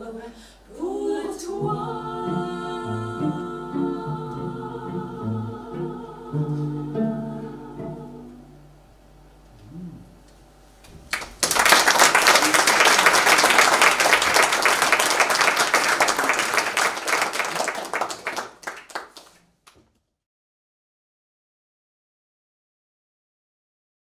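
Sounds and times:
audience applauding: 11.0 - 19.4.

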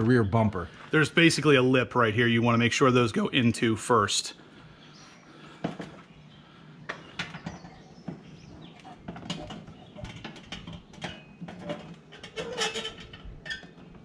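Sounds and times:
plastic parts clicking and knocking: 6.9 - 14.0.

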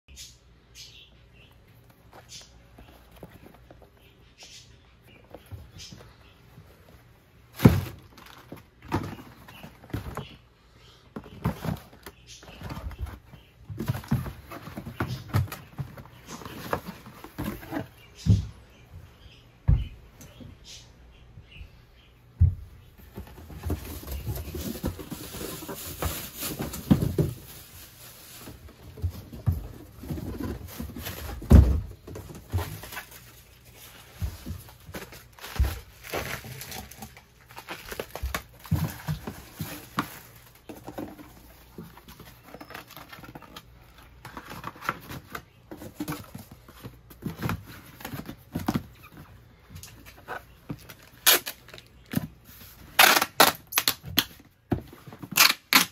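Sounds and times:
packaging rustling and crinkling: 23.0 - 55.9.

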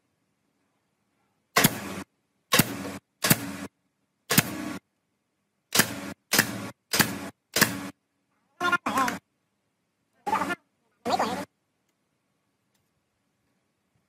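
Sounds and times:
nail gun firing into plywood: 1.5 - 3.7, 4.3 - 4.8, 5.7 - 8.0.

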